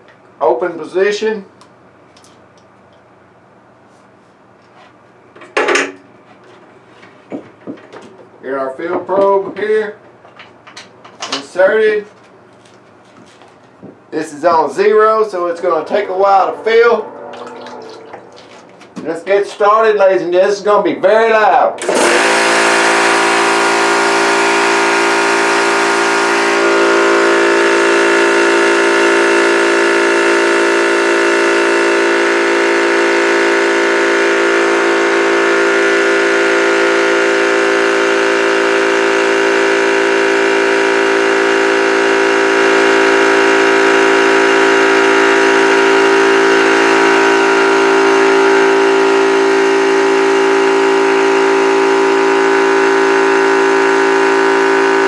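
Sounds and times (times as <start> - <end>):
air compressor running: 21.8 - 55.0.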